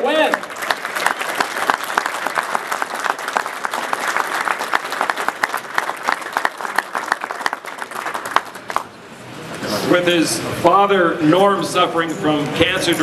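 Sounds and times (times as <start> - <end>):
crowd clapping: 0.0 - 8.9.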